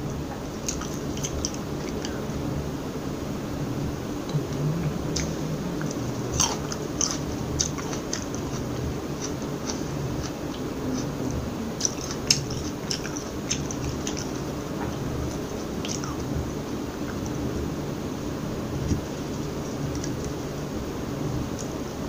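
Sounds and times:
soft chewing clicks: 0.1s - 2.3s, 4.2s - 17.4s, 18.8s - 20.5s.

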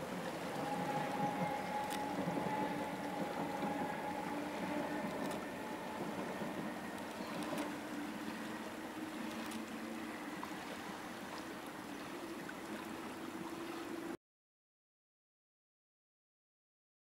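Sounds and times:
train wheel noise rushing: 0.0s - 10.1s
train humming tone: 0.0s - 14.2s.

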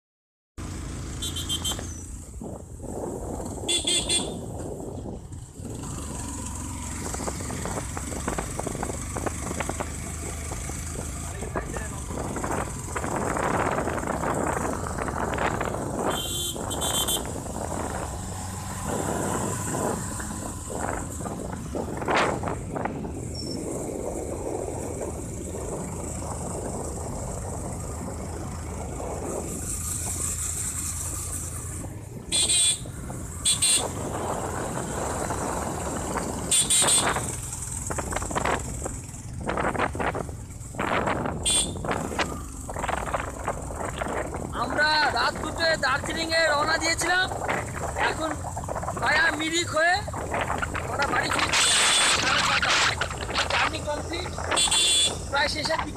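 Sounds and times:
motorcycle engine hum: 0.6s - 55.9s
wind noise on microphone: 1.6s - 55.9s.

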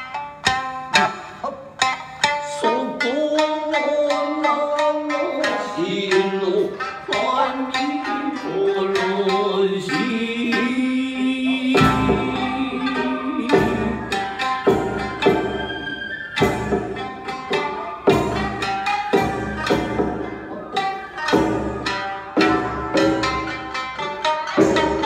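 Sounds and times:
plucked shamisen: 0.0s - 25.0s
man singing long held notes: 2.5s - 14.1s.

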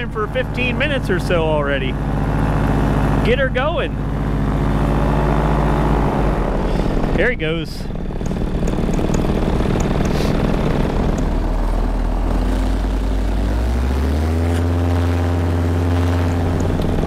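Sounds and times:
paramotor engine and propeller: 0.0s - 17.0s.

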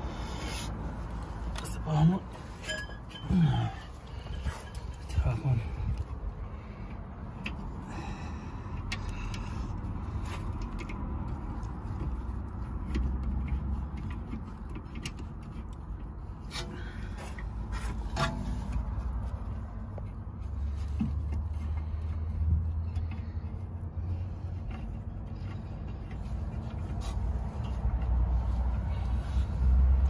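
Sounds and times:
light metallic clicks and scrapes: 8.7s - 30.0s.

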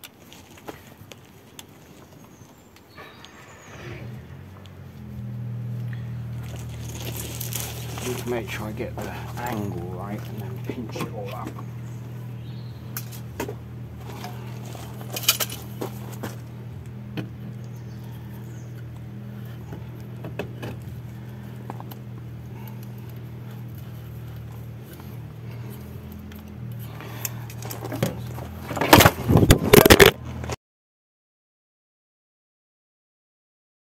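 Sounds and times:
steady low hum: 2.8s - 30.5s
metallic clinks of exhaust parts: 5.5s - 30.0s.

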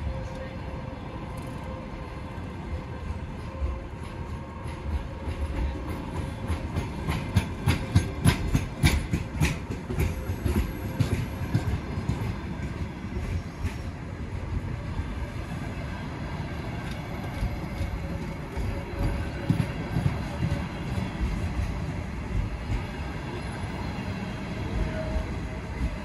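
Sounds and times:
low rumble of rolling train: 0.0s - 26.0s
train wheels clattering over rail joints: 4.1s - 14.1s.

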